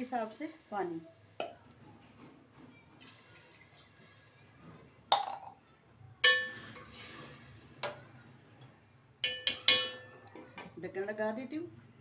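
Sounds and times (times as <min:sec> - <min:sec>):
metal spoon clinking on pot: 0:06.2 - 0:06.8, 0:09.2 - 0:10.3.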